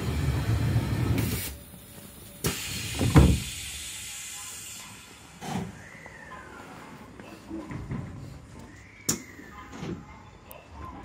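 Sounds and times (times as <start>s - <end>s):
train low rumble: 0.0s - 2.8s
train doors closing: 0.0s - 5.8s
air hiss: 2.2s - 5.2s.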